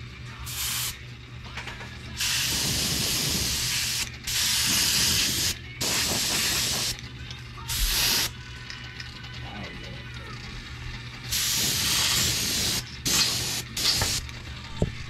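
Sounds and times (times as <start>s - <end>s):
airbrush spraying hiss: 0.5s - 1.0s, 2.2s - 7.0s, 7.7s - 8.3s, 11.3s - 14.2s.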